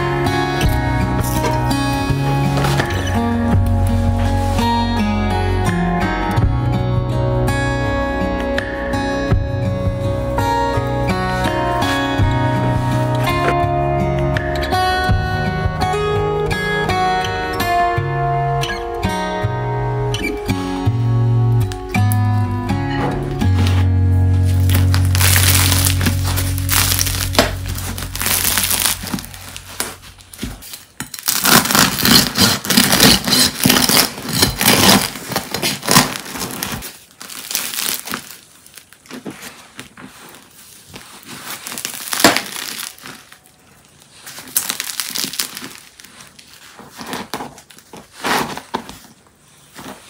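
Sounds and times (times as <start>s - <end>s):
guitar music: 0.0s - 30.4s
bread crust crackling: 24.5s - 30.6s, 31.2s - 49.0s
bread crumbling: 24.5s - 50.0s.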